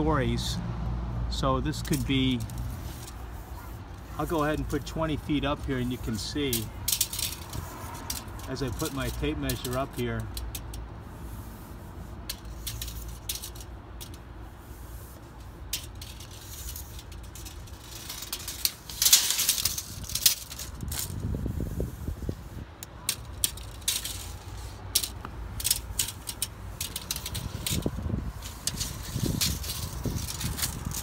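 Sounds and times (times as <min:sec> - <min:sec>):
tape measure blade clicking: 0:04.2 - 0:10.8, 0:15.1 - 0:21.2, 0:22.8 - 0:31.0.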